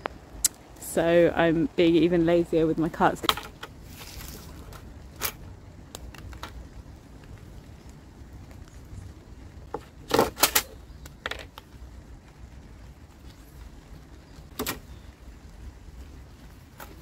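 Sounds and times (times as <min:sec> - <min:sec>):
faint low rumble: 0:00.0 - 0:10.1.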